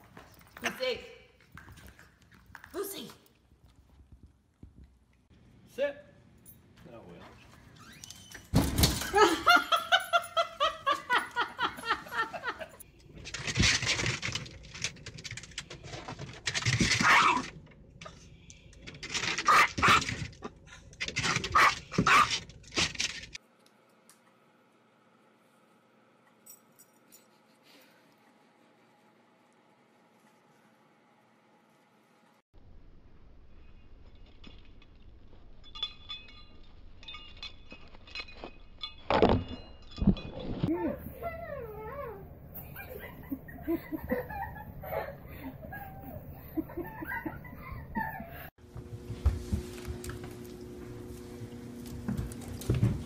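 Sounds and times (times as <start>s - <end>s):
small dog barking and whining: 40.7s - 43.2s.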